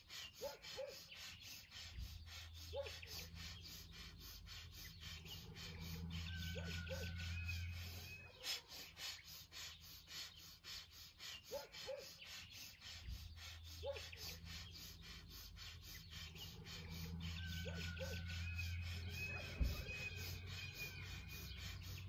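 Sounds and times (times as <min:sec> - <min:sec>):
birds chirping: 0:00.0 - 0:22.0
rapid forced nasal exhalations: 0:00.0 - 0:22.0.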